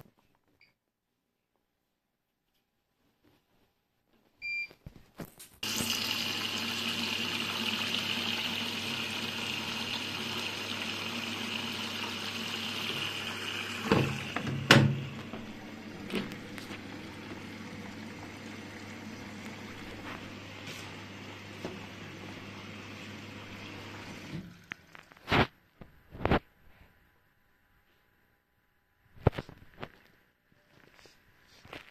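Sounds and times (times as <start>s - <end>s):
water rushing into washing machine: 5.6s - 25.3s.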